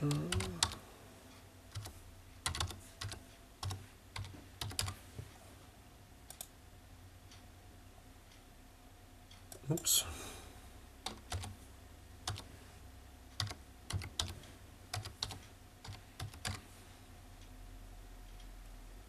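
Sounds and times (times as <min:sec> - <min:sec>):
computer keyboard typing: 0:00.0 - 0:00.8, 0:01.7 - 0:05.0, 0:11.0 - 0:11.6, 0:12.2 - 0:12.5, 0:13.4 - 0:16.6.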